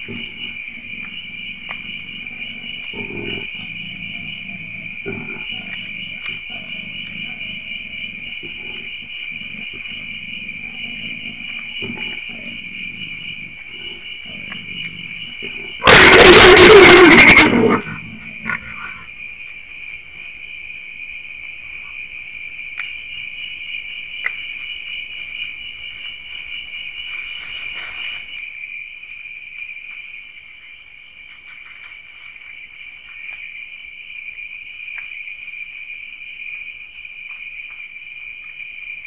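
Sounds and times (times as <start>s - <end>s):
night insects trilling: 0.0s - 39.0s
faint ticks: 24.2s - 24.7s.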